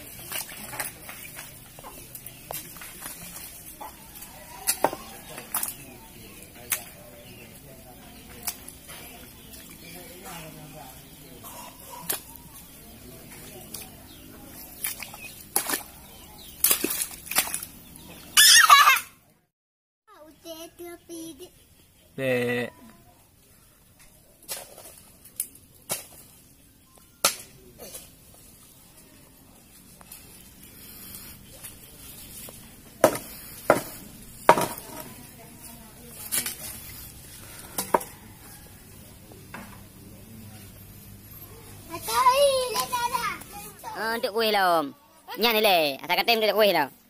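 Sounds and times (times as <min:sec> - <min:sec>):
chicken squawking: 0:18.3 - 0:19.1
stick knocking on ground: 0:33.0 - 0:35.1.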